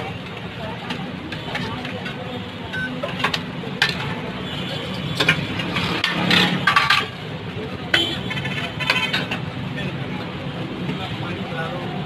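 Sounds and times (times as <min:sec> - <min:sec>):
cooking noise: 0:00.0 - 0:11.0
traffic hum: 0:00.0 - 0:12.0
steel bowls and utensils clinking: 0:00.8 - 0:09.6.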